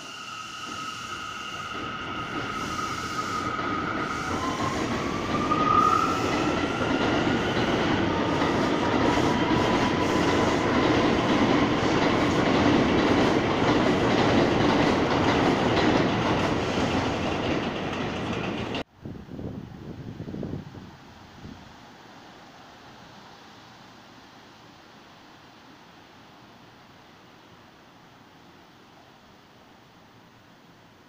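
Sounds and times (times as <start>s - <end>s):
train wheels rumbling on rails: 0.2s - 18.9s.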